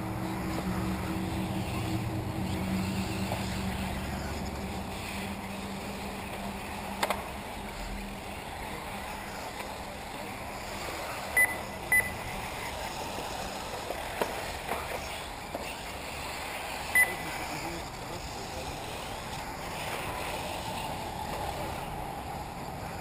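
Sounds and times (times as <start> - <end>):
rc car motors and tyres: 0.0 - 23.0
short high electronic beeps: 11.4 - 12.2, 17.0 - 17.2.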